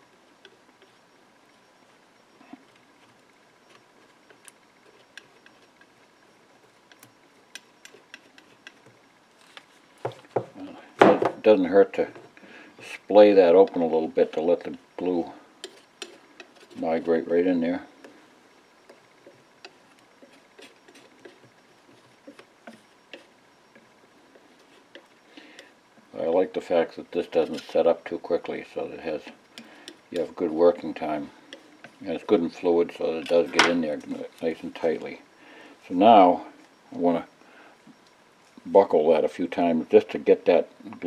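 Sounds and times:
knife scraping against wood: 15.6s - 17.2s.

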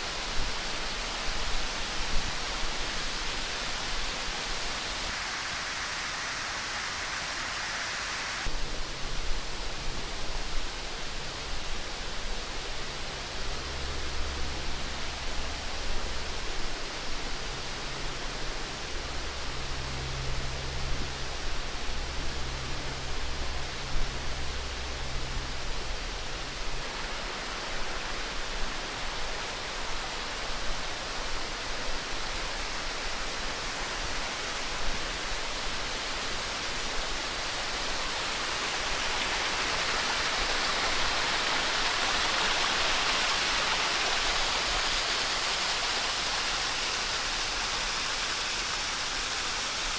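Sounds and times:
water rushing: 0.0s - 49.9s
low steady hum: 8.5s - 47.9s.

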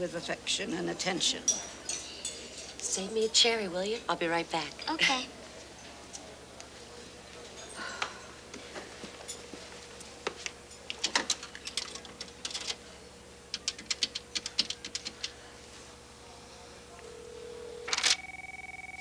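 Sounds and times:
faint steady tone: 16.9s - 19.0s
payphone clicks: 17.0s - 19.0s.

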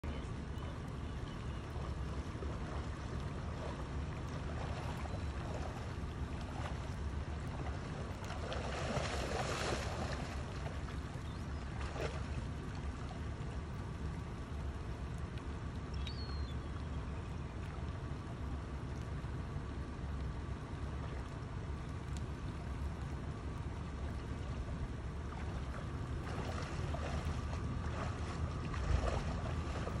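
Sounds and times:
stream water running: 0.0s - 30.0s
bear splashing through water: 2.4s - 11.0s, 11.8s - 12.4s, 25.3s - 30.0s
wind rumble on microphone: 23.2s - 30.0s.

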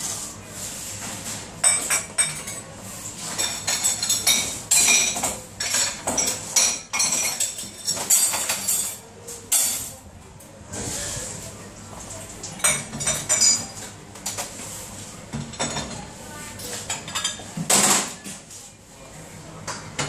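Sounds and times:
crockery clattering and clinking: 1.6s - 10.0s, 12.5s - 14.5s, 15.3s - 16.0s, 16.6s - 18.4s.

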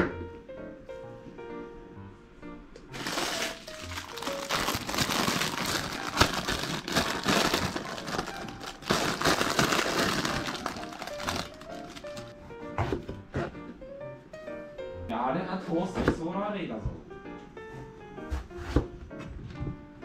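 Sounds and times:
light background music: 0.0s - 20.0s
plastic bag crinkling: 2.9s - 12.3s.

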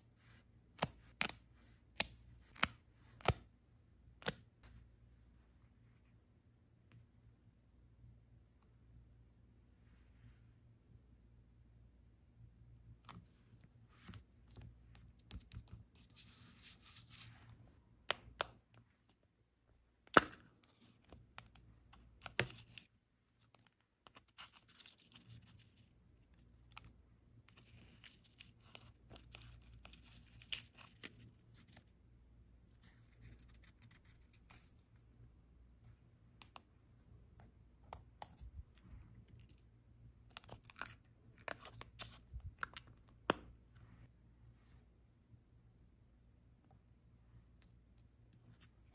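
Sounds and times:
soft paper rustling: 20.5s - 32.0s, 32.6s - 35.1s.

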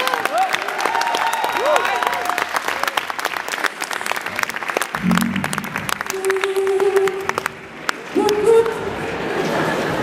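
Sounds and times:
audience applauding: 0.0s - 8.1s
short low microphone sound: 5.0s - 6.5s.

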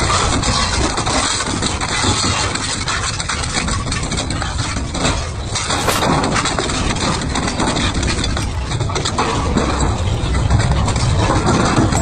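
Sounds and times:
sharp metallic cracks and bangs: 5.5s - 8.4s.

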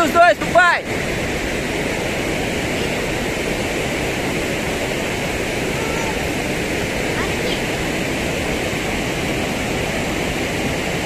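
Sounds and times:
water rushing over a spillway: 0.0s - 11.0s.

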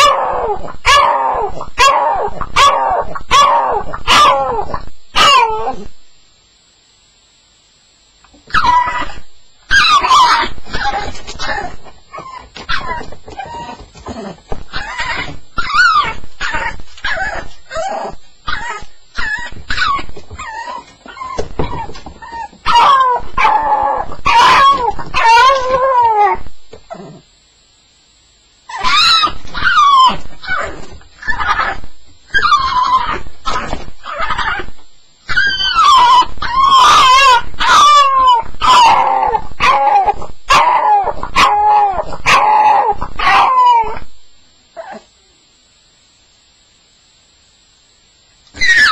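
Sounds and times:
dog whining and crying: 8.5s - 27.2s, 28.7s - 44.1s, 44.8s - 45.1s, 48.6s - 48.9s.

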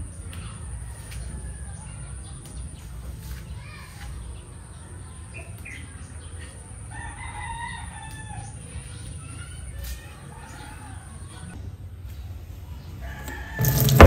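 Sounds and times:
rooster crowing: 6.9s - 8.4s, 13.0s - 14.0s.

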